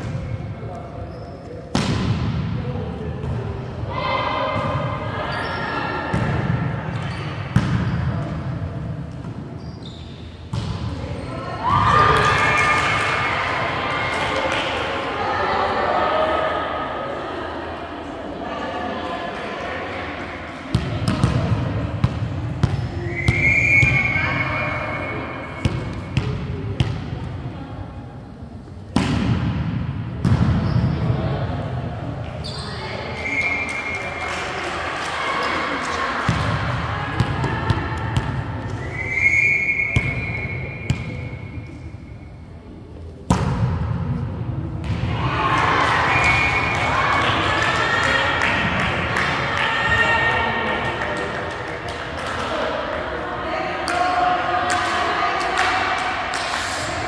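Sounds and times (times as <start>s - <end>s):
volleyball hits ringing in gym: 1.5s - 3.6s, 4.2s - 9.5s, 10.4s - 11.4s, 20.6s - 27.6s, 28.9s - 31.5s, 35.4s - 38.8s, 39.5s - 42.0s, 43.2s - 52.7s.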